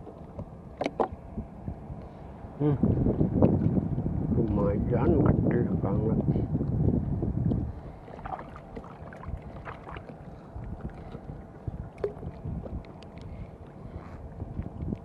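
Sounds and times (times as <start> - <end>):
wind rumble on microphone: 0.0 - 15.0
water lapping against canoe: 7.5 - 15.0.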